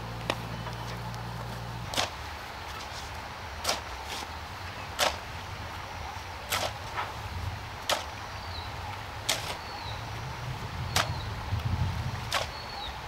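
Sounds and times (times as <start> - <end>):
steady low rumble: 0.0 - 13.0
shovel chopping into soil: 1.9 - 4.3, 4.9 - 5.3, 6.5 - 7.2, 7.8 - 8.1, 9.2 - 9.6, 11.0 - 11.2, 12.3 - 12.6.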